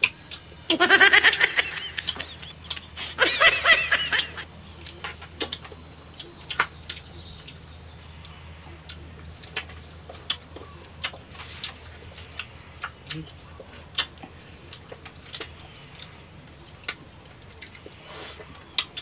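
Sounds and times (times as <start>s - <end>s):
low steady hum: 0.0s - 19.0s
wet sucking eating sounds: 17.6s - 19.0s.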